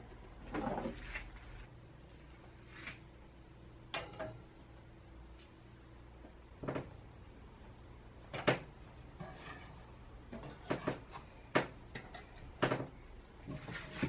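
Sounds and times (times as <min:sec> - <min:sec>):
bread rolls knocking and scraping: 0:08.4 - 0:14.0.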